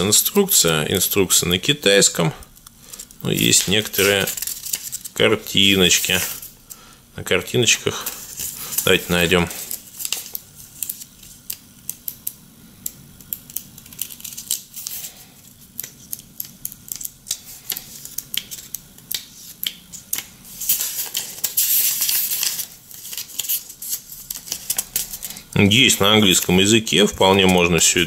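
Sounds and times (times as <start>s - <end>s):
booklet pages flipping: 2.9s - 6.6s, 7.6s - 12.2s, 13.2s - 28.0s
paper rustling: 2.9s - 6.6s, 7.7s - 11.5s, 13.8s - 28.0s.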